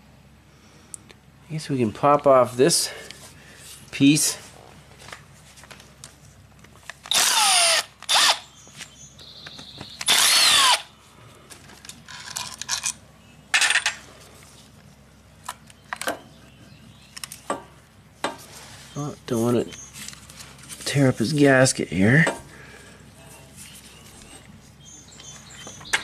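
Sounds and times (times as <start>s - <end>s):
electric drill bursts: 7.1s - 8.5s, 10.0s - 10.9s.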